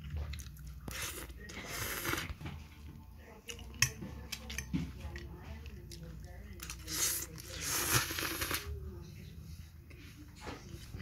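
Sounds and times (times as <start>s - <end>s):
chewing: 0.0s - 2.4s.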